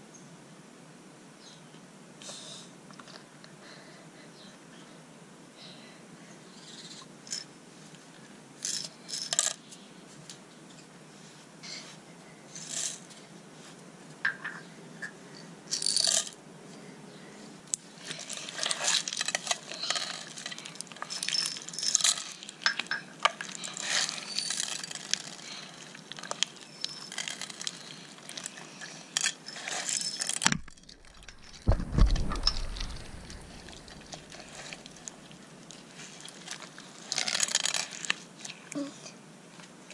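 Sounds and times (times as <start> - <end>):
slime crackling and squelching: 23.5 - 28.8
low thump: 30.6 - 34.0.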